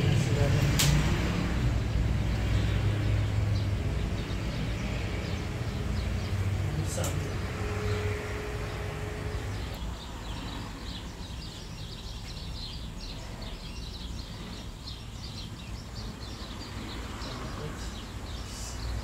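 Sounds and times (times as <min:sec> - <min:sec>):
low engine rumble: 0:00.0 - 0:14.8
small birds chirping: 0:00.0 - 0:19.0
steady hum: 0:05.4 - 0:09.8.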